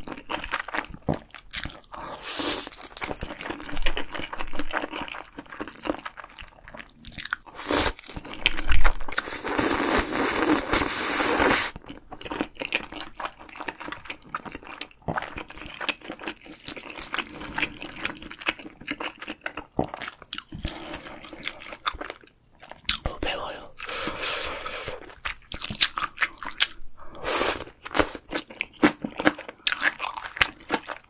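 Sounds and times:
person slurping noodles: 2.0s - 2.8s, 7.5s - 8.1s, 9.1s - 11.8s, 23.3s - 25.2s, 27.0s - 28.2s.

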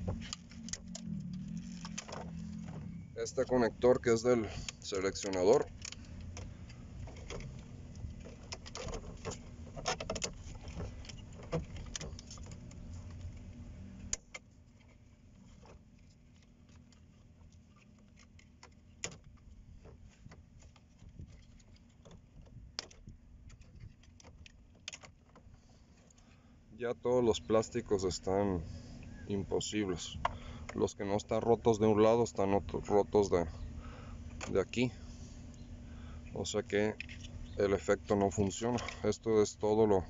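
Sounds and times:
low steady rumble: 0.0s - 40.0s
plastic clicks and rattles: 4.7s - 13.4s, 14.1s - 26.2s.

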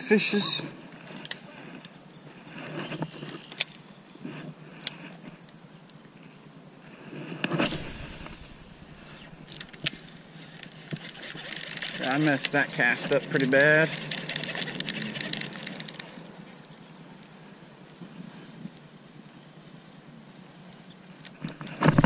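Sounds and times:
brief rush of noise: 7.4s - 10.3s
fishing reel clicks and rustles: 7.6s - 17.4s.

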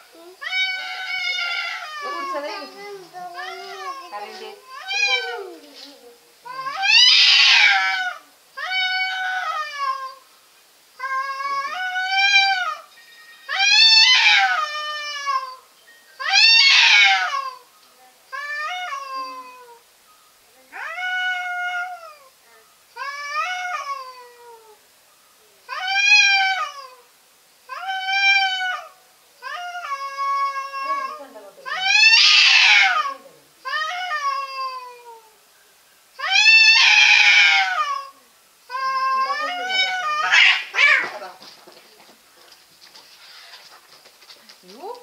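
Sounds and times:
cats yowling: 0.3s - 2.7s, 3.3s - 5.8s, 6.4s - 10.2s, 11.0s - 12.9s, 13.5s - 17.7s, 18.3s - 19.9s, 20.7s - 22.4s, 23.0s - 24.8s, 25.7s - 27.1s, 27.7s - 35.4s, 36.2s - 41.3s.

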